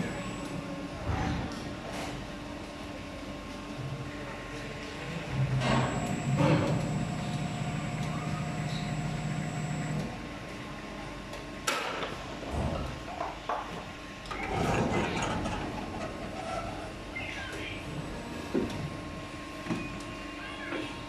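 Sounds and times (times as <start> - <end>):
machine hum: 0.0 - 1.6, 2.3 - 10.6
rough mechanical noise: 5.6 - 10.0.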